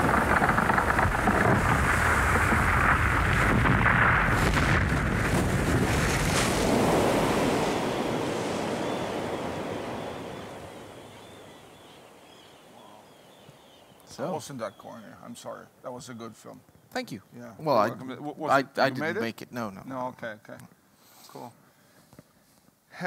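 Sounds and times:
ice crashing into the sea: 0:00.0 - 0:12.2
water washing: 0:00.0 - 0:13.6.

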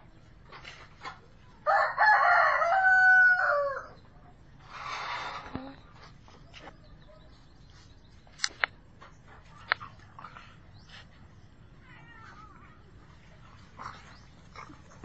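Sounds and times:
sharp clicks: 0:08.3 - 0:08.8
cat crying: 0:11.8 - 0:12.8.

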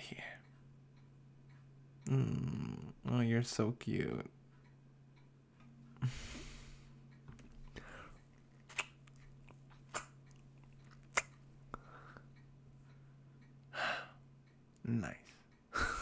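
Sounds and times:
faint low hum: 0:00.0 - 0:16.0
soft breath: 0:06.0 - 0:07.0, 0:07.6 - 0:08.2, 0:11.7 - 0:14.2
wet kissing lip smacks: 0:08.7 - 0:09.2, 0:10.9 - 0:11.4.

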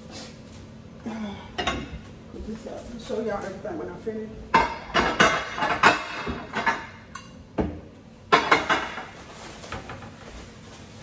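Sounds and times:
dishes clinking and knocking: 0:04.5 - 0:10.1.

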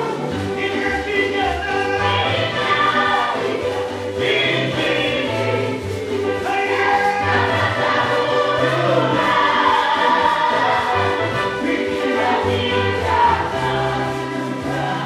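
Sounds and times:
group singing gospel song: 0:00.0 - 0:15.0
keyboard accompaniment: 0:00.0 - 0:15.0.

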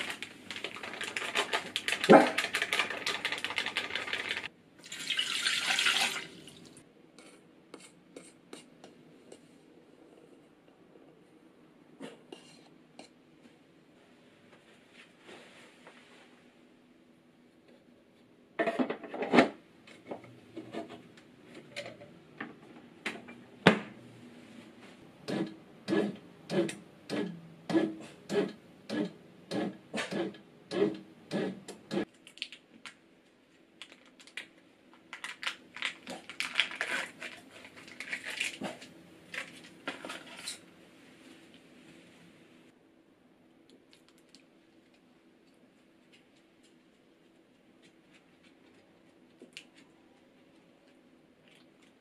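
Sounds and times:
light clicks and crinkling: 0:33.8 - 0:38.6, 0:43.7 - 0:47.0.

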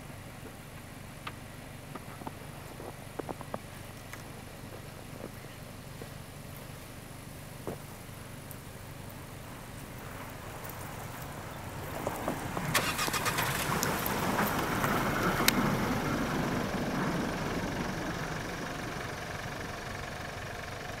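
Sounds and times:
engine running under load: 0:00.0 - 0:21.0
tyres crunching through snow: 0:01.9 - 0:18.9
sharp crackles: 0:11.9 - 0:15.6.

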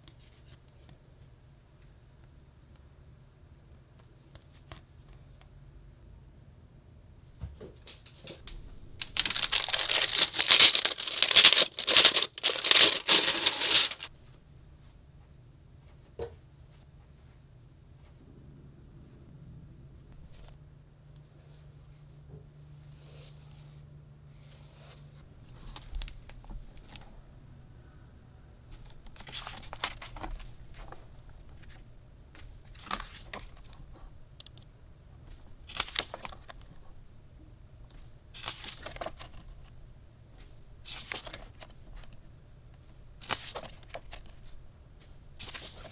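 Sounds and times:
faint steady low hum: 0:00.0 - 0:45.9
book pages rustling and turning: 0:08.2 - 0:14.2, 0:22.9 - 0:27.1, 0:28.7 - 0:34.1, 0:35.2 - 0:37.0, 0:37.9 - 0:45.9
plastic wrapping crinkling: 0:08.4 - 0:14.1, 0:25.5 - 0:27.1.

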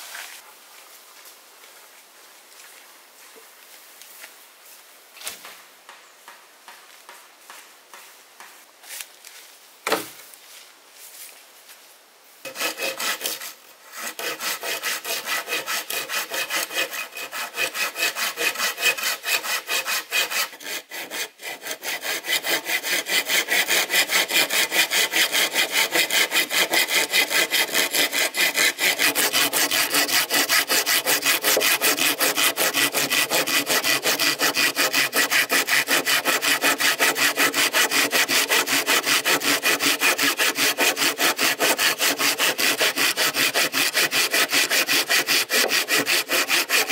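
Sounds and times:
hand saw cutting wood: 0:12.4 - 0:46.9.

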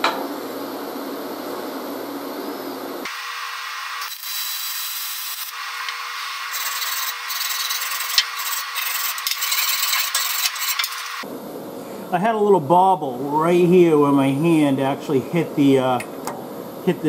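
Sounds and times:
wire brush scrubbing metal: 0:04.0 - 0:11.2.

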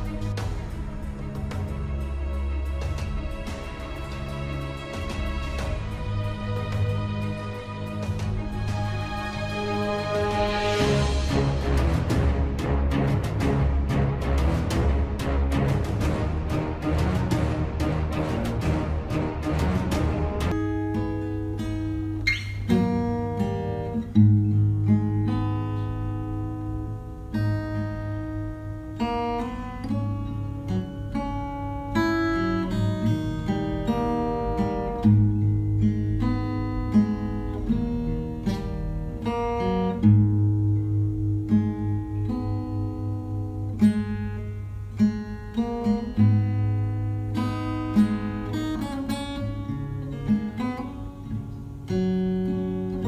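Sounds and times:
acoustic guitar picking and strumming: 0:00.0 - 0:53.0.

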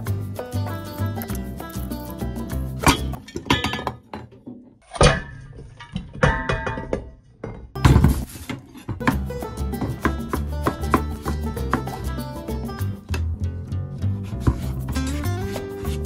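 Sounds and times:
background music: 0:00.0 - 0:03.2, 0:07.8 - 0:16.0.

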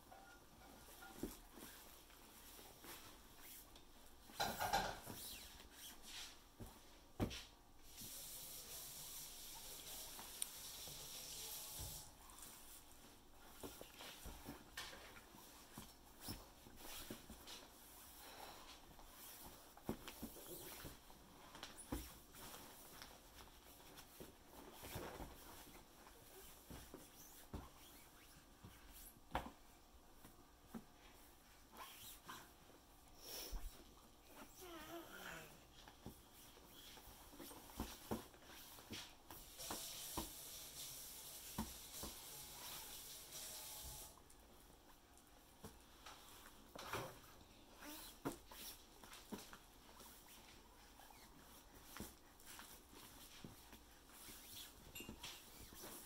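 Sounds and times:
faint hiss: 0:00.8 - 0:56.0
baby hands patting a mat: 0:06.6 - 0:07.5.

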